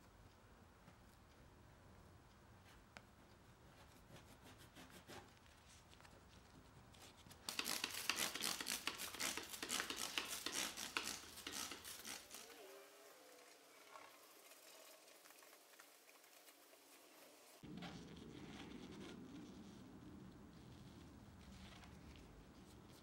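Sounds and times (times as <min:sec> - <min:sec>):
plastic scraper scratching tabletop: 0:07.5 - 0:12.6
rapid scrubbing strokes: 0:07.5 - 0:19.9.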